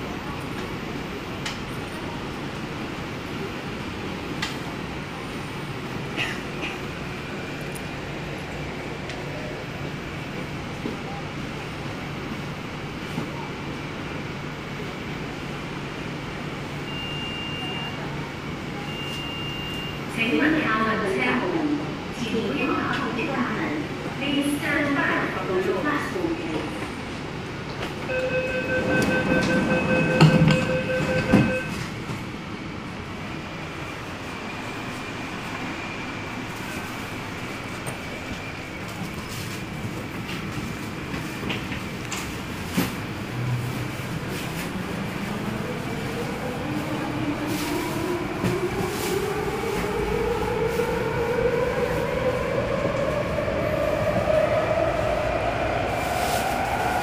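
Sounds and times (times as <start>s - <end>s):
door-closing warning beeps: 16.8s - 18.0s, 18.8s - 20.0s, 28.0s - 31.8s
train doors sliding shut: 27.6s - 32.3s.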